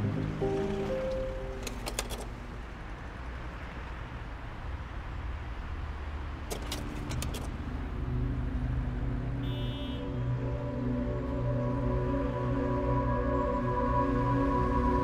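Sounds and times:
music tones: 0:00.0 - 0:01.8.

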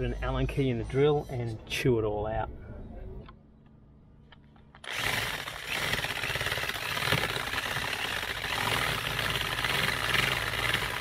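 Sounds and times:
electric drill running: 0:04.8 - 0:11.0.

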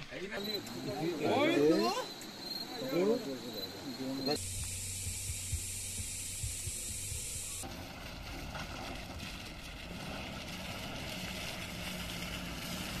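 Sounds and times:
high steady hiss: 0:00.0 - 0:07.7
vehicle engines humming: 0:00.0 - 0:13.0.

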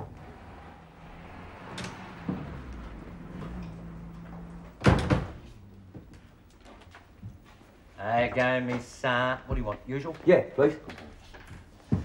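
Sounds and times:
low room tone hum: 0:00.0 - 0:10.6
door banging shut: 0:04.8 - 0:05.5.

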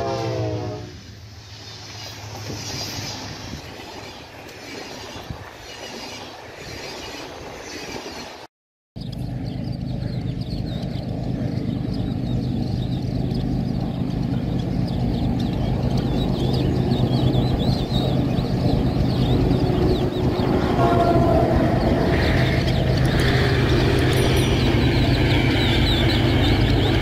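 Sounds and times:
train rumble: 0:00.0 - 0:07.0, 0:09.0 - 0:27.0
locomotive engine drone: 0:09.0 - 0:27.0.

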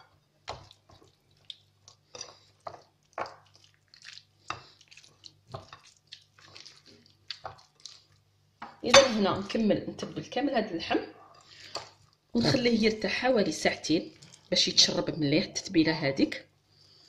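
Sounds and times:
wet squelches of meat in marinade: 0:00.6 - 0:08.3.

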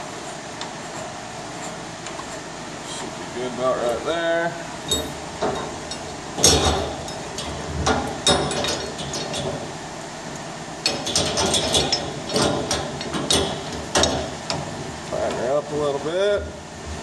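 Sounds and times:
steel parts clinking: 0:04.9 - 0:09.5.

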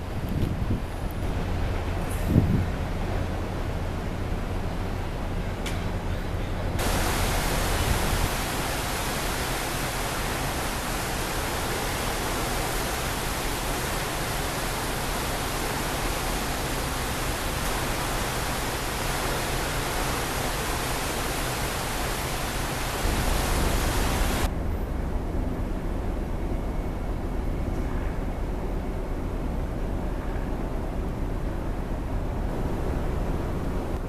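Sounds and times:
rushing hiss aboard a ship: 0:00.8 - 0:04.8, 0:06.8 - 0:24.5.

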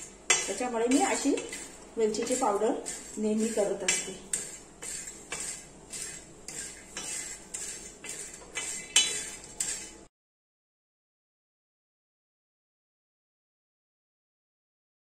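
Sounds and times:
utensil scraping a pan: 0:00.0 - 0:10.1.

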